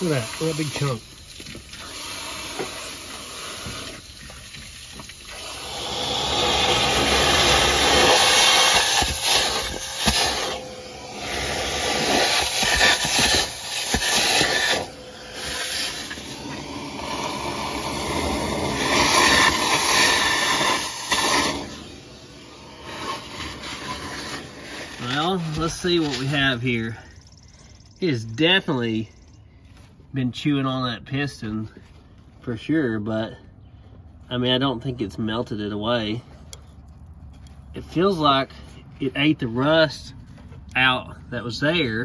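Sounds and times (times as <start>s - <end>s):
hose water spraying and splashing: 0.0s - 26.6s.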